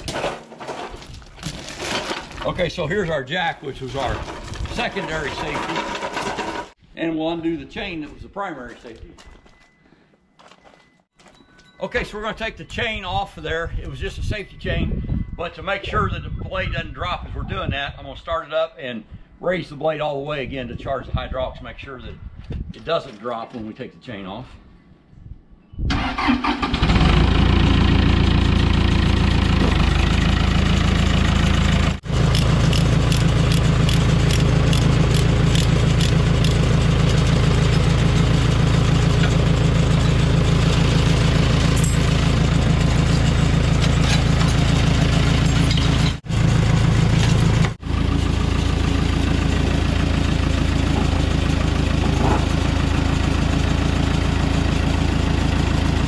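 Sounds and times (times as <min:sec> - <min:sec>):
diesel engine starting and running: 0:03.7 - 0:06.8, 0:25.9 - 0:56.0.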